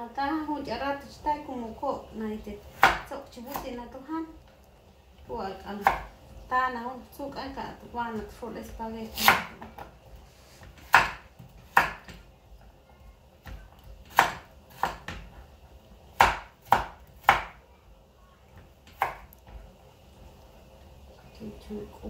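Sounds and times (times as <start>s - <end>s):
knife chopping on wooden board: 2.8s - 3.6s, 5.8s - 6.1s, 9.1s - 9.9s, 10.6s - 12.2s, 13.4s - 15.3s, 16.2s - 17.6s, 18.9s - 19.3s.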